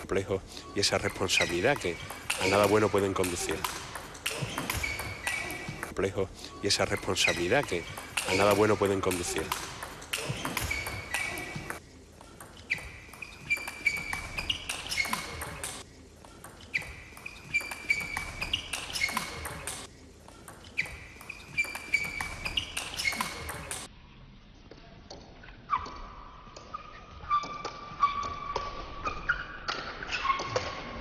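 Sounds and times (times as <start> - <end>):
short high squeaks: 4.3 - 5.9, 10.1 - 11.8, 12.7 - 15.8, 16.6 - 19.8, 20.7 - 23.9.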